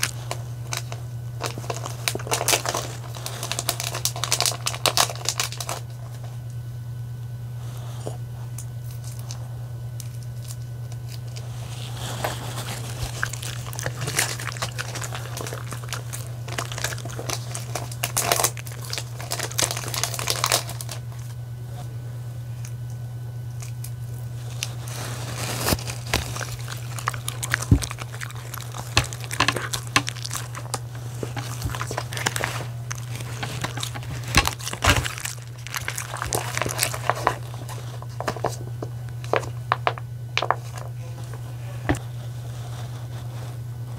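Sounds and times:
plastic wrapper crinkling: 0:00.0 - 0:06.3, 0:10.0 - 0:21.4, 0:23.5 - 0:43.6
steady low hum: 0:00.0 - 0:43.9.

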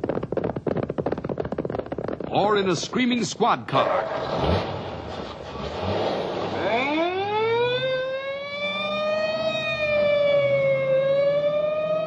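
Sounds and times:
police siren wailing: 0:06.5 - 0:12.0.

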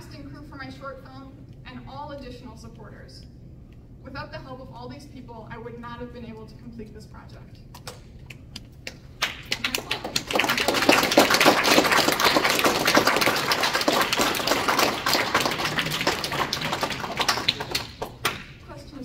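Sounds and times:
audience applauding: 0:09.2 - 0:18.5.

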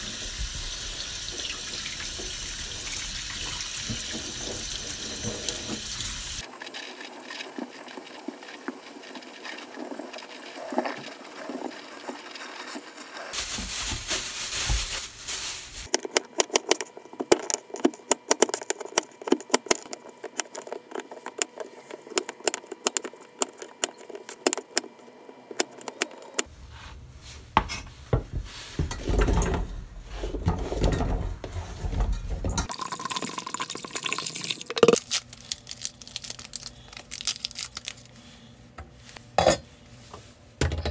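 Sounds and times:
water splashing in a sink: 0:00.0 - 0:06.4, 0:32.6 - 0:34.9
water pouring into a pot: 0:00.0 - 0:12.8, 0:32.6 - 0:35.0.

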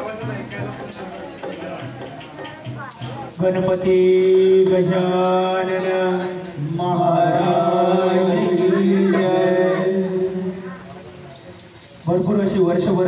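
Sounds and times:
devotional chanting: 0:03.0 - 0:13.0.

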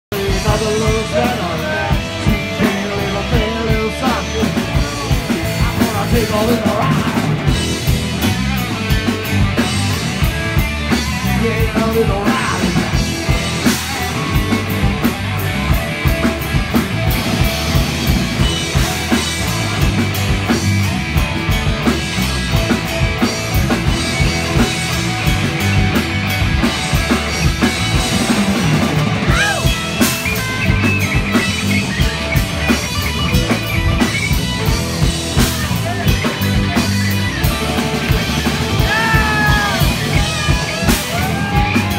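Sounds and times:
drum kit beat: 0:00.1 - 0:41.9
electric guitars: 0:00.1 - 0:41.9.

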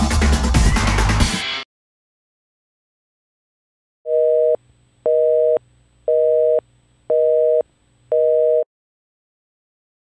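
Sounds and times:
telephone busy signal: 0:04.1 - 0:08.7.

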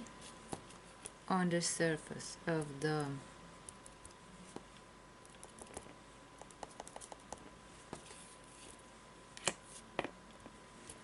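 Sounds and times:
brush tapping on painting: 0:05.4 - 0:07.5.

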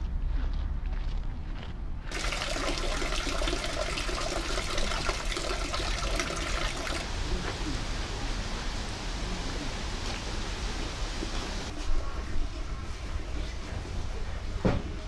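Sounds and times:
water splashing into stone basin: 0:02.1 - 0:07.1.

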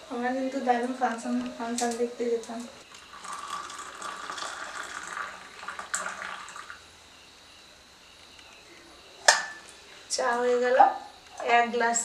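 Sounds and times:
tea pouring into metal cup: 0:02.9 - 0:06.8.

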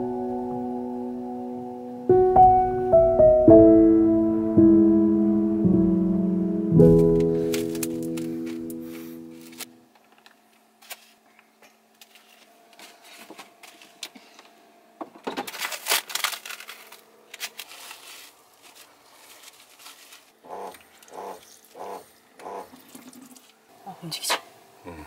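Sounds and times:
plastic wrap crinkling: 0:07.1 - 0:11.3, 0:15.4 - 0:21.7.

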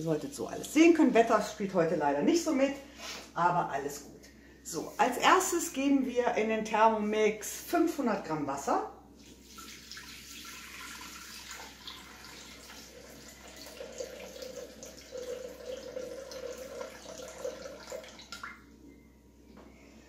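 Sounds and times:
water pouring into metal bowl: 0:09.5 - 0:18.5
steady note as bowl fills: 0:09.6 - 0:18.6.

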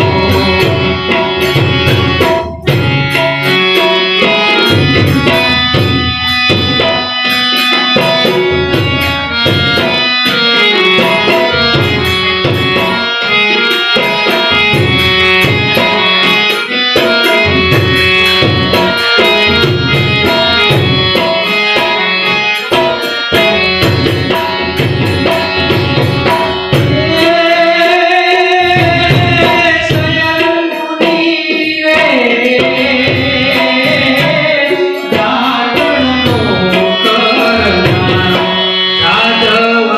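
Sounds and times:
man singing: 0:00.0 - 0:02.4, 0:25.2 - 0:39.9
tabla strokes: 0:00.0 - 0:27.8, 0:28.4 - 0:39.6
harmonium chords: 0:00.0 - 0:39.9.

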